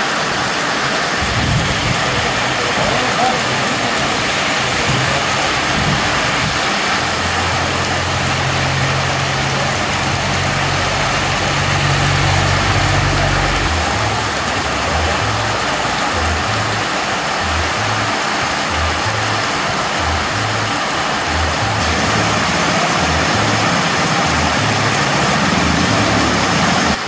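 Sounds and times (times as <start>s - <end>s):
heavy rain on flooded street: 0.0s - 27.0s
car engine driving past: 1.2s - 15.7s.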